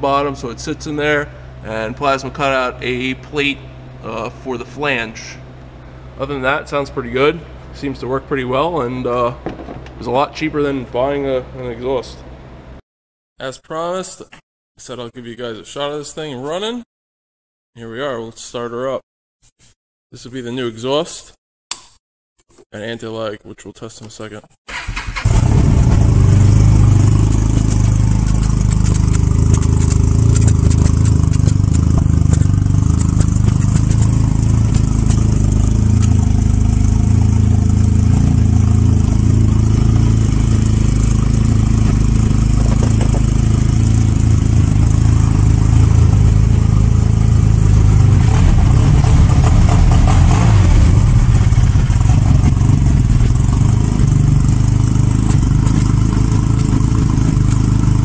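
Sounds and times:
snowmobile engine idling: 25.3 - 58.0.

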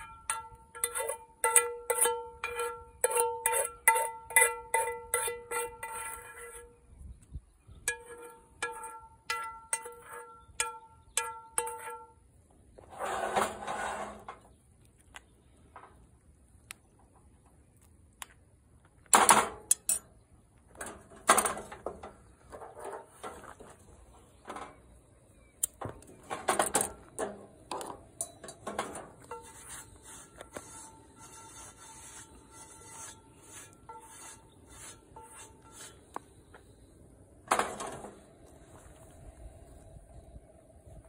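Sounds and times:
metal spoon and skillet clattering: 0.0 - 6.7, 7.8 - 12.1, 19.2 - 20.1, 26.3 - 29.6.

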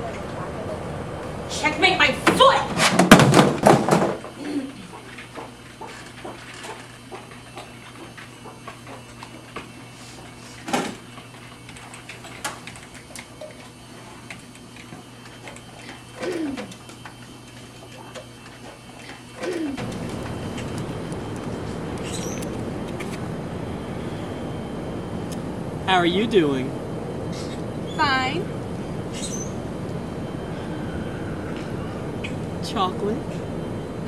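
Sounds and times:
low room hum: 0.0 - 34.0
outdoor background hiss: 0.0 - 34.0.

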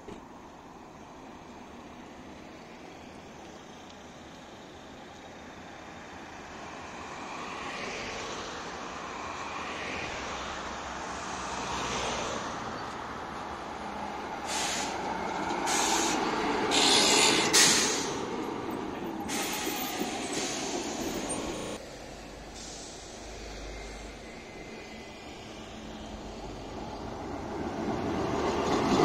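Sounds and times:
tram passing: 0.0 - 29.0
short bursts of hiss: 14.5 - 15.0, 15.6 - 18.2, 22.5 - 23.6.

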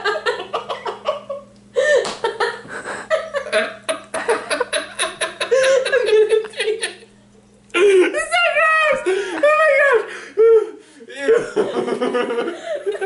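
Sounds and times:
man laughing hard: 0.0 - 7.1, 10.4 - 13.0.

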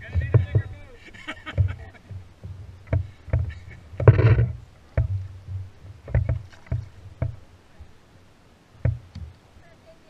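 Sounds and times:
knocks against wooden canoe: 0.0 - 0.8, 1.4 - 7.4, 8.8 - 9.3.

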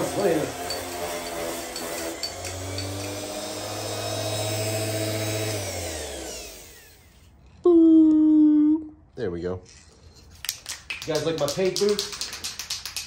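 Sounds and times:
orbital sander on metal: 0.0 - 7.3.

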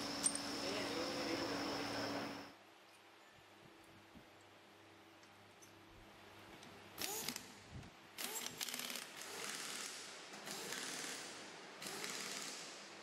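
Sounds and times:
pneumatic air wrench: 7.0 - 7.5, 8.2 - 12.9.

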